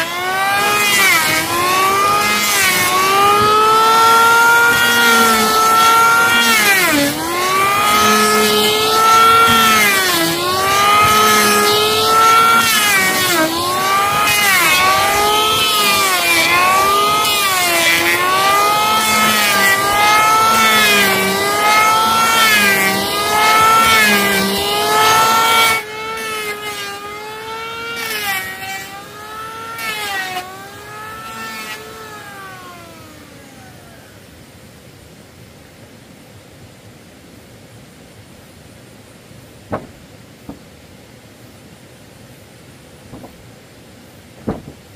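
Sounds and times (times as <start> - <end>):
electric hand planer cutting wood: 0.0 - 34.2.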